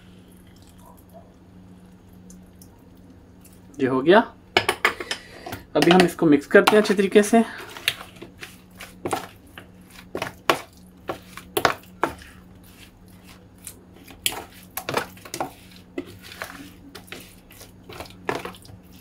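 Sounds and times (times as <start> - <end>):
fork scraping plastic bowl: 7.6 - 19.0.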